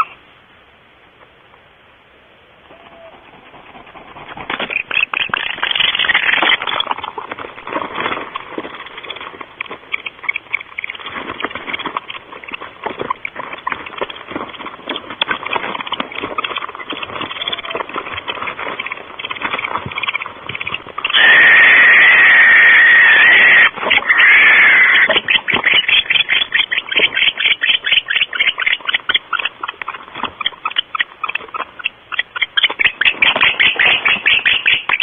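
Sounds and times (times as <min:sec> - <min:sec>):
owls scratching on nest litter: 0:02.7 - 0:35.0.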